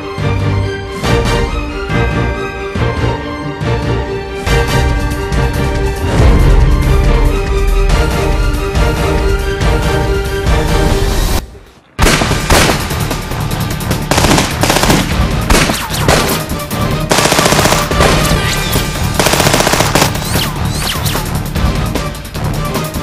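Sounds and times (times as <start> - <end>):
action music: 0.0 - 23.0
rapid pistol gunfire: 12.0 - 13.0, 14.0 - 16.5, 17.1 - 18.3, 19.0 - 20.5.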